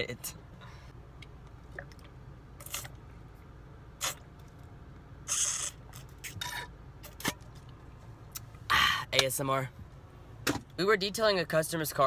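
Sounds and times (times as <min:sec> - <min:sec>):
person sipping and gulping: 0:01.6 - 0:03.0, 0:04.0 - 0:04.3, 0:05.2 - 0:07.4.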